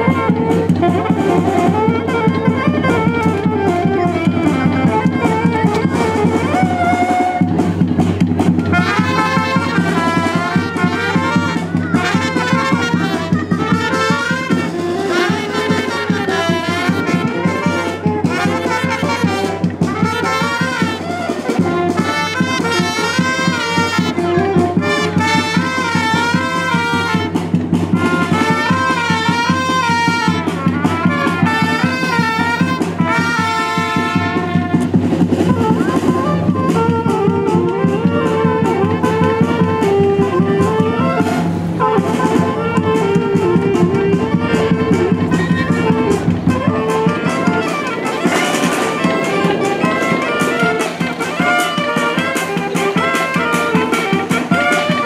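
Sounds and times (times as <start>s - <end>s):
brass-led dance music: 8.6s - 27.5s, 28.2s - 35.0s.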